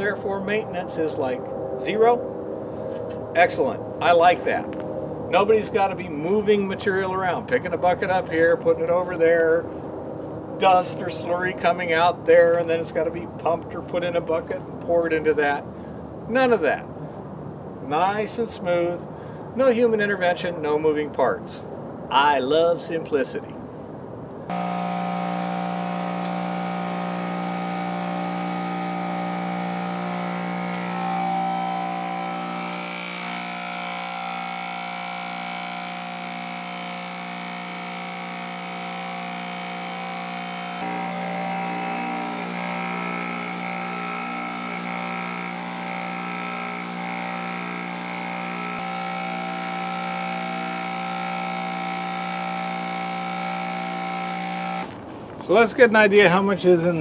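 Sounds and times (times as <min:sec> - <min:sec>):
impact mill humming with high whine: 0:24.5 - 0:55.5.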